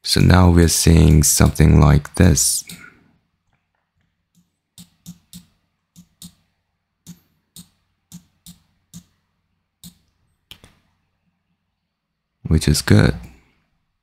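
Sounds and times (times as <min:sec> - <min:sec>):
computer mouse clicking: 0:04.4 - 0:06.4.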